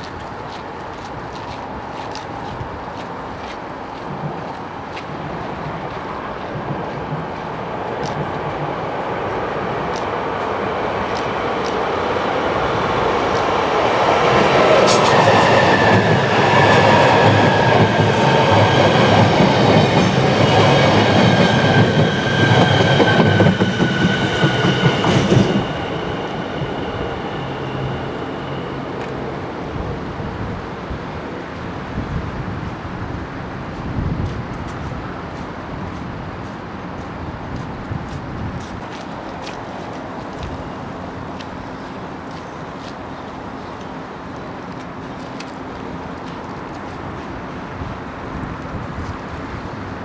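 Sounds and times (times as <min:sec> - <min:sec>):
electric train passing: 0:03.7 - 0:33.8.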